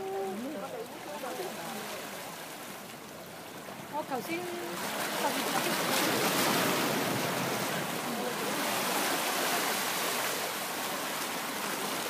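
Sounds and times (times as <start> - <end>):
seawater washing over rocks: 3.7 - 12.0.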